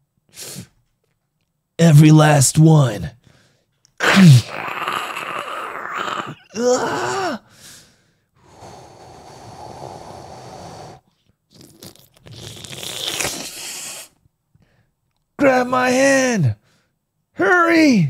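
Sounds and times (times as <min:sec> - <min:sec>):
man groaning: 0:04.0 - 0:07.4
sharp hissing gasp: 0:07.5 - 0:11.1, 0:12.8 - 0:14.2
breathy rush of air: 0:08.4 - 0:11.1.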